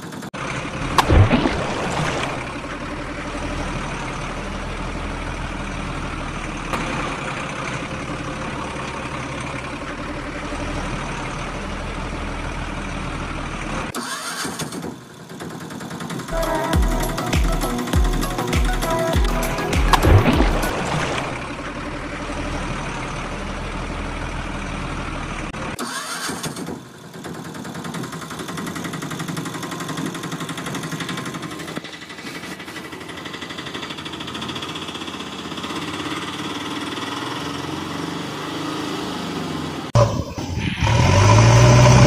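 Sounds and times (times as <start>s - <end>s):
diesel truck engine idling: 0.0s - 1.0s, 2.2s - 14.0s, 15.0s - 25.8s, 26.8s - 40.3s
water splashing: 1.0s - 2.8s, 18.4s - 21.5s
music with a beat: 16.4s - 20.7s
low thumps: 16.8s - 20.8s.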